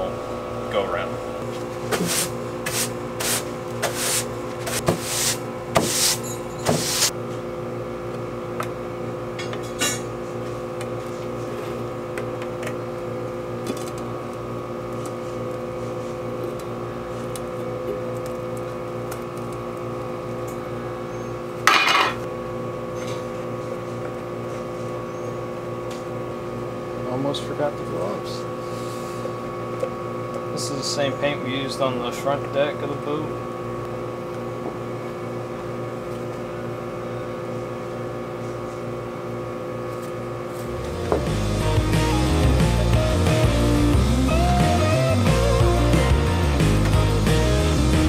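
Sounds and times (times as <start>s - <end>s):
steady multi-tone hum: 0.0s - 48.0s
broom sweeping plywood: 1.8s - 7.1s.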